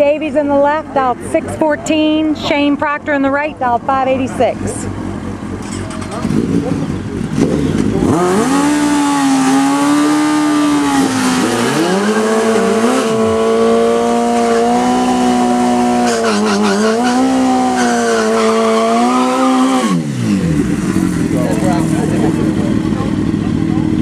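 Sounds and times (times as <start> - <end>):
motorcycle engine revving high: 4.4 - 24.0
tyre squealing: 10.7 - 20.2.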